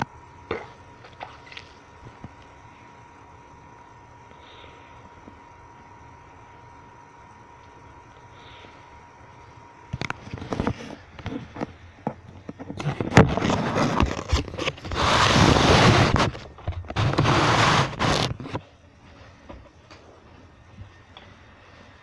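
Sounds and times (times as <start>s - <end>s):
microphone rubbing and scraping: 10.0s - 18.7s.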